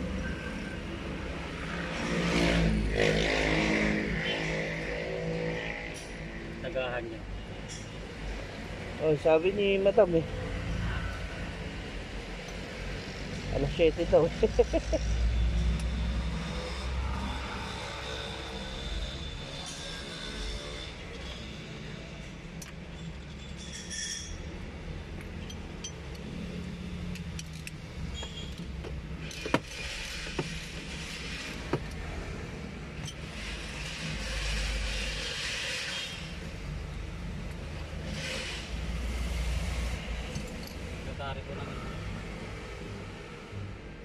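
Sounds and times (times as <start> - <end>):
sharp metallic clinks: 25.3 - 29.5.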